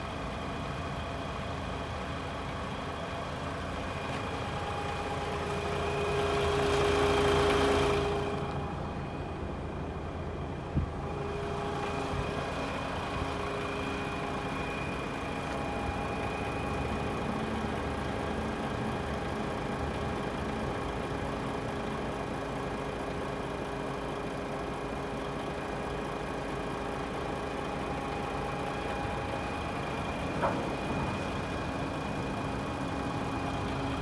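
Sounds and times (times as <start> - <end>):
diesel truck engine idling: 0.0 - 34.0.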